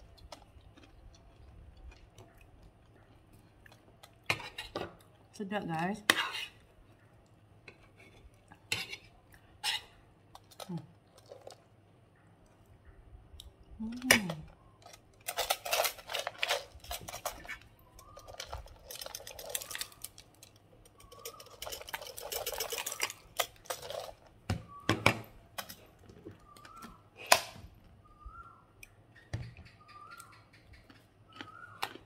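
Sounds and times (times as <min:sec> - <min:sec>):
spoon scraping ceramic plate: 0:07.7 - 0:10.0
dry rattling from glass jar: 0:15.2 - 0:24.2.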